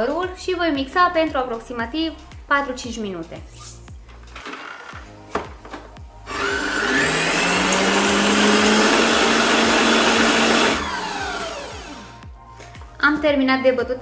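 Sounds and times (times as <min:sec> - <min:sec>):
stand mixer motor whining: 0:06.3 - 0:12.2.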